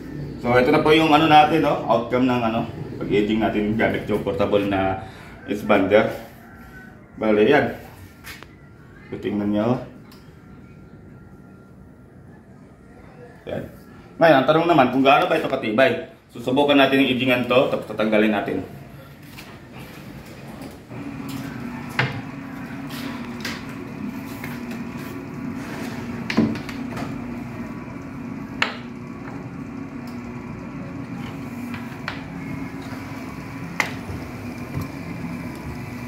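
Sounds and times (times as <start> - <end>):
edge banding machine humming: 20.9 - 36.0.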